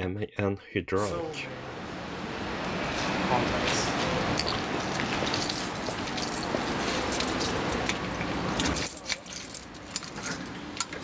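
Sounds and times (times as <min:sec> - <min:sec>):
keys jangling: 0:04.1 - 0:11.0.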